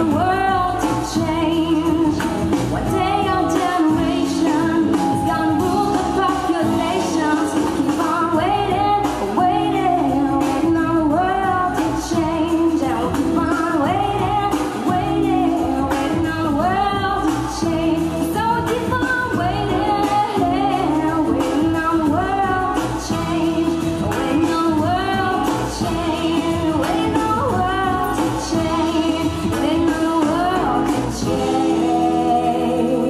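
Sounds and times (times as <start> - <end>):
instrumental accompaniment: 0.0 - 33.0
woman singing into a microphone: 0.0 - 33.0.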